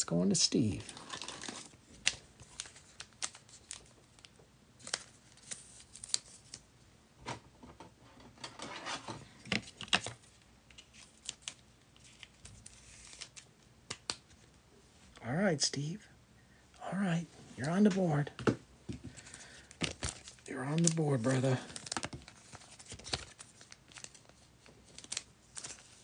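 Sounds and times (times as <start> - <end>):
plastic rustling: 0.6 - 6.6, 18.9 - 26.0.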